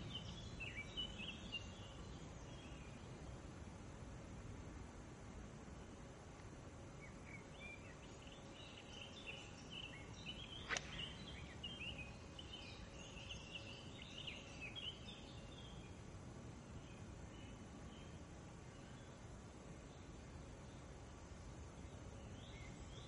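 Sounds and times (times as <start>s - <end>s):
faint birdsong chirps and warbling: 0.0s - 3.9s, 5.6s - 23.0s
sharp click: 10.6s - 11.1s.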